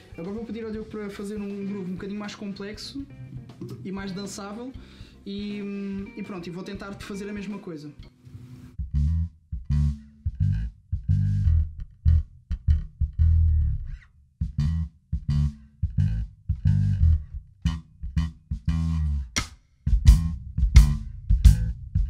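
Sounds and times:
drum kit playing: 0.0 - 7.6, 8.7 - 11.8, 14.4 - 22.0
electric bass groove: 8.6 - 22.0.

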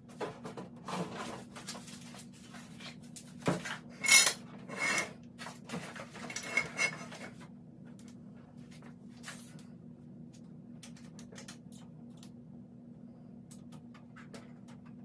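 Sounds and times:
steady low hum: 0.0 - 15.0
metal bicycle parts clinking: 4.0 - 5.0.

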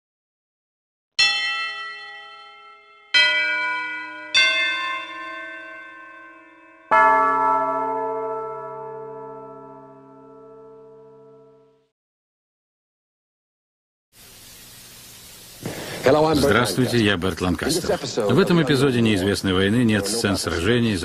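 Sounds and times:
bells ringing: 1.2 - 11.7.

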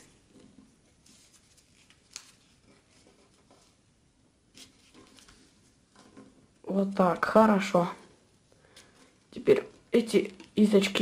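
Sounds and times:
paper rustling and crinkling: 0.0 - 3.8, 4.5 - 7.3
paper crackle: 1.0 - 3.8.

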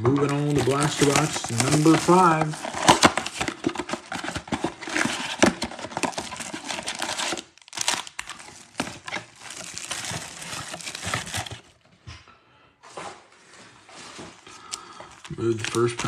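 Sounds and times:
shrink wrap crinkling and tearing: 0.0 - 11.8, 14.6 - 16.0
cardboard box flaps rustling: 0.9 - 11.7.

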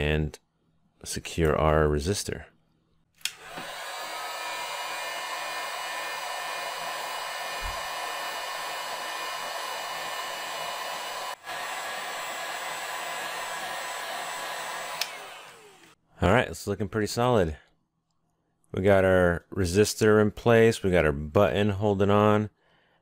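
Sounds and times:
heat gun fan whine: 3.2 - 16.0.

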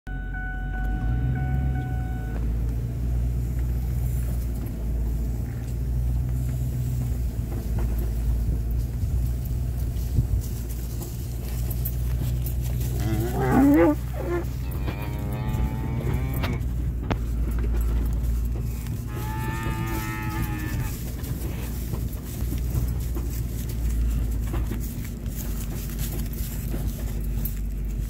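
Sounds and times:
truck engine idling: 0.1 - 28.0
cow mooing: 12.8 - 16.7, 19.0 - 21.7.

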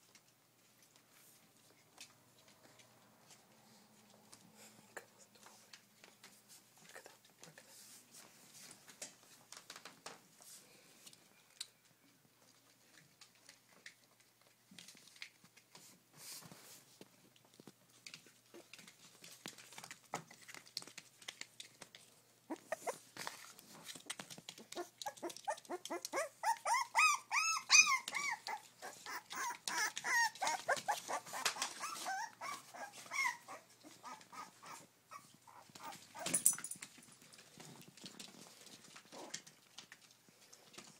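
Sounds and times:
puppies whimpering and yipping: 22.5 - 23.1, 24.6 - 36.4.

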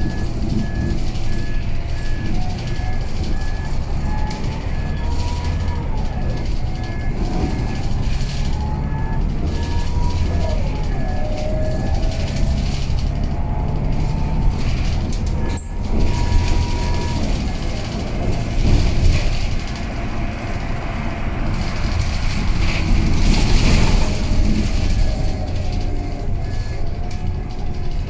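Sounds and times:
bus engine and road noise: 0.0 - 28.0.

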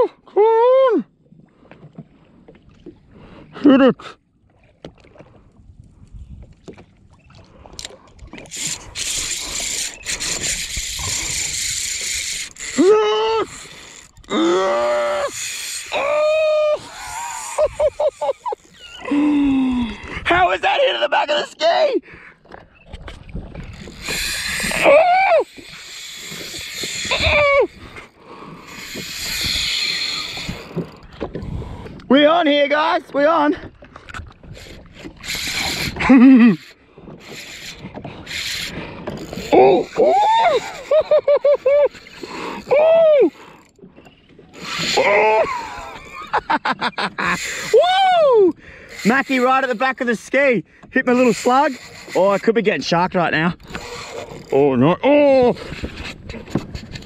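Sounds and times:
man crying out: 0.0 - 1.1, 12.8 - 13.6, 14.3 - 17.7, 24.7 - 25.5, 27.1 - 27.7, 39.6 - 41.9, 42.7 - 43.4, 47.7 - 48.5
fishing rod and reel clicks: 7.7 - 19.2, 22.5 - 32.1, 34.1 - 46.0, 47.1 - 47.8, 48.5 - 50.3, 51.0 - 52.9, 53.5 - 54.7, 55.3 - 57.0
fishing line running off reel: 7.8 - 19.3, 23.7 - 31.0, 34.5 - 46.4, 47.1 - 50.1, 51.1 - 52.5, 53.6 - 54.7.

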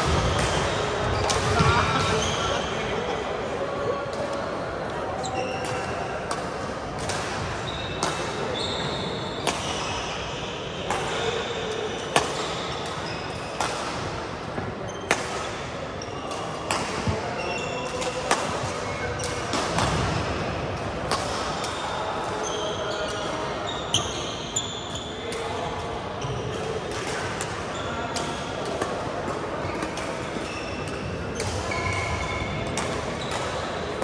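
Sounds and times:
shoes squeaking on court floor: 5.2 - 6.1, 7.6 - 13.7, 17.0 - 19.5, 21.8 - 25.3, 29.7 - 33.8
racket hitting shuttlecock: 5.6 - 8.5, 12.1 - 15.6, 17.9 - 21.8, 26.5 - 33.8.

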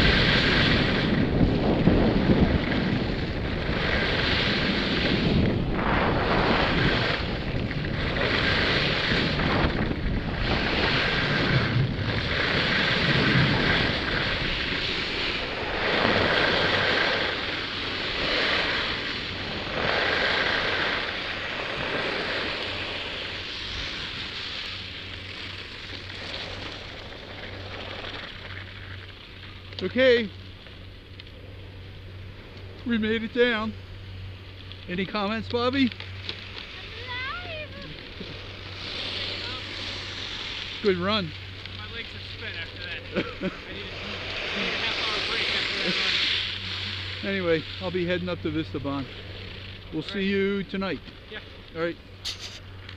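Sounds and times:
wind buffeting microphone: 0.0 - 24.4
skis carving on packed snow: 0.0 - 30.3, 34.8 - 52.7.

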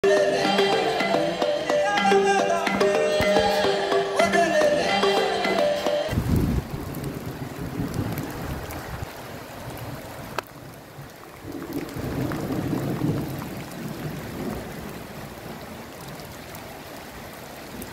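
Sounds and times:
rain on wet paving: 6.1 - 17.9
runoff water flowing: 6.1 - 17.9.

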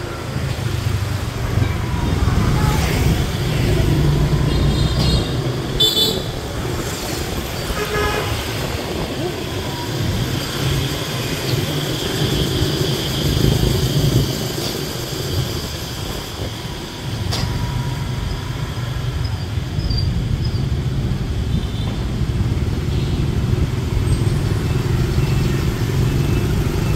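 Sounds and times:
scooter engine humming: 0.0 - 18.8
street traffic: 0.0 - 26.9.

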